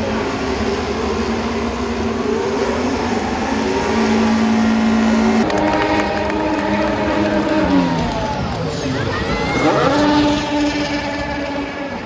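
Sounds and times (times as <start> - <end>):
racing car engines droning: 0.0 - 12.0.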